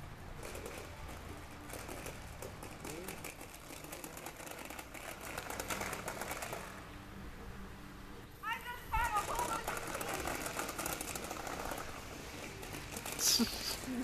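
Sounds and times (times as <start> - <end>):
plastic push toy clicking: 9.2 - 11.8.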